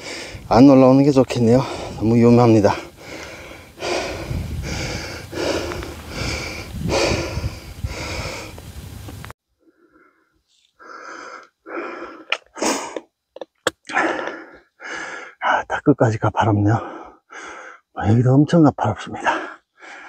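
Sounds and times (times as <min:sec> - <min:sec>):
person panting heavily: 0:00.0 - 0:00.5, 0:01.5 - 0:08.6, 0:09.6 - 0:13.1, 0:13.9 - 0:15.4, 0:16.8 - 0:17.9, 0:19.2 - 0:20.0
low rumble: 0:02.7 - 0:09.3.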